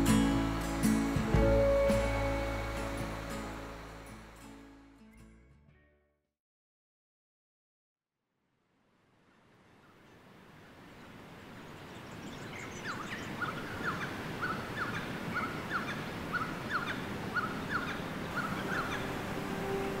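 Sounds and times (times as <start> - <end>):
river rushing: 0.0 - 4.8, 10.2 - 20.0
bird calling in paired notes: 12.4 - 20.0.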